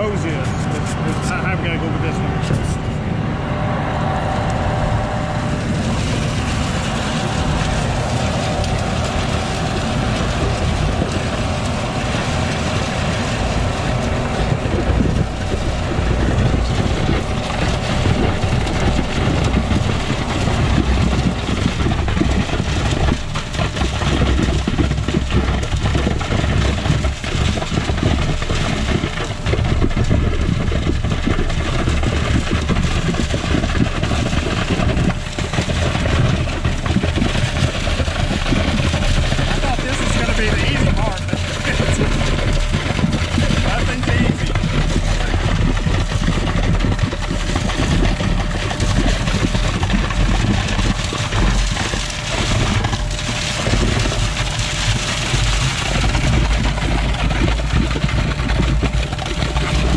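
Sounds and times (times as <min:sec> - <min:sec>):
concrete pump engine rumbling: 0:00.0 - 0:59.9.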